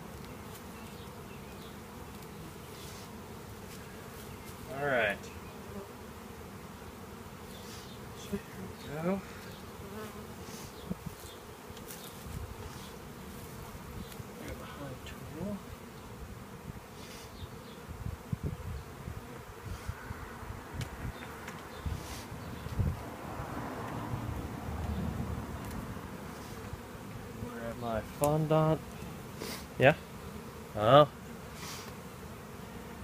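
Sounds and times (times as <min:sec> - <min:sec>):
honeybees buzzing: 0:00.0 - 0:33.0.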